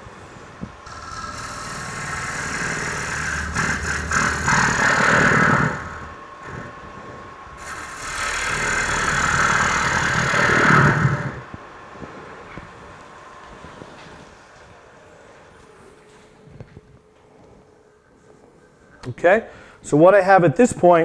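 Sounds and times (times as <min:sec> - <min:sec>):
lathe motor hum: 0:00.0 - 0:11.8
gouge cutting spinning wood: 0:00.8 - 0:06.7, 0:07.6 - 0:11.5.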